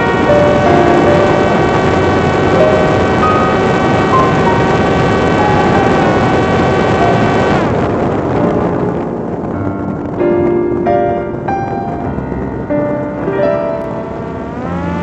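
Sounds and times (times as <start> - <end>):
drone motor and propeller whining: 0.0 - 8.4, 12.0 - 15.0
loud rushing air: 0.0 - 14.7.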